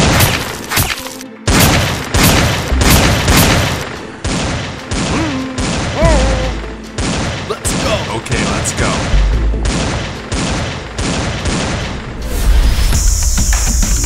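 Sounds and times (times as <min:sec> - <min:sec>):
rapid gunfire bursts: 0:01.5 - 0:06.0, 0:06.9 - 0:12.0.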